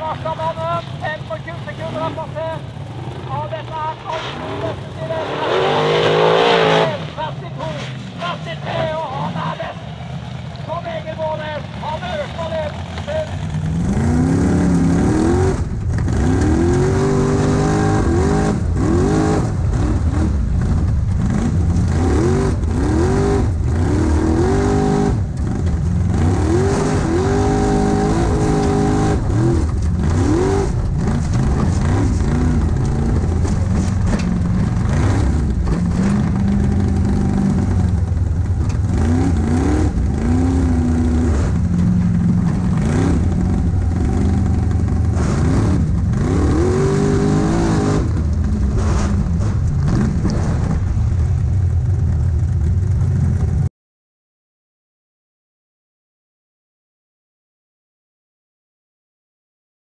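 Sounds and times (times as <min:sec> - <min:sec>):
buggy engine revving: 0:00.0 - 0:53.7.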